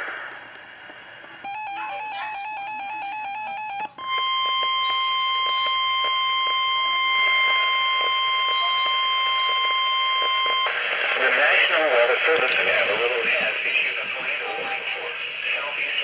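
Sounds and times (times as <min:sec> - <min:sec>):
warbling two-pitch beep: 0:01.4 - 0:10.7
steady warning alarm tone: 0:01.4 - 0:11.7.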